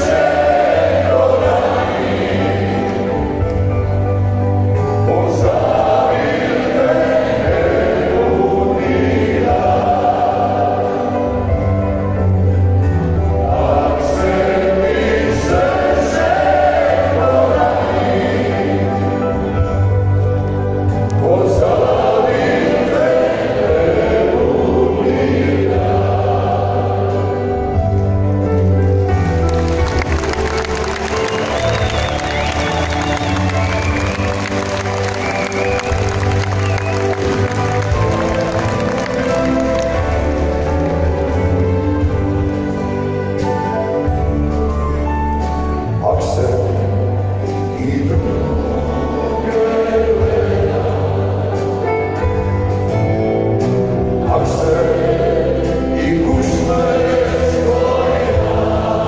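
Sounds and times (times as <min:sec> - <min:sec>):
male vocal ensemble singing in harmony: 0:00.0 - 0:04.0, 0:04.6 - 0:28.0, 0:46.0 - 0:52.9, 0:53.6 - 0:59.0
amplified band with guitars and bass: 0:00.0 - 0:59.0.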